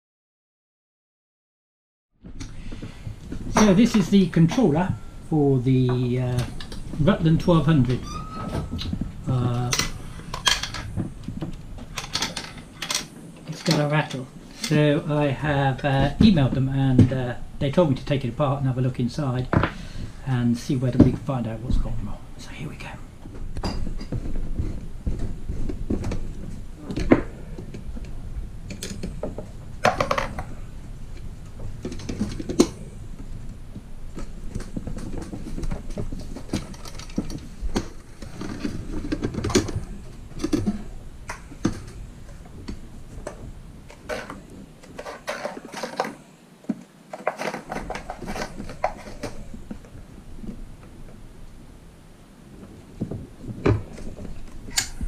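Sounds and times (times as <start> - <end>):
clicks knocks and scrapes of plastic and metal: 5.8 - 14.8, 23.2 - 51.2, 52.6 - 55.0.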